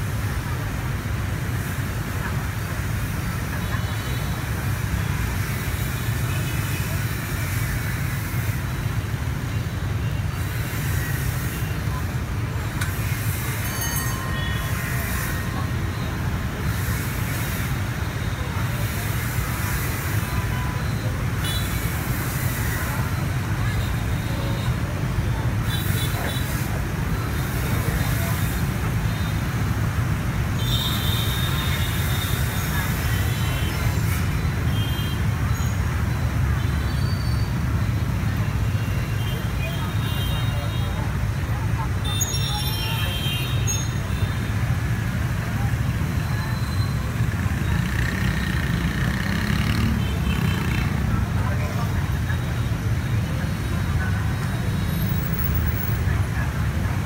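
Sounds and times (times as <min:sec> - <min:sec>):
motorbike engines passing: 0:00.0 - 0:57.0.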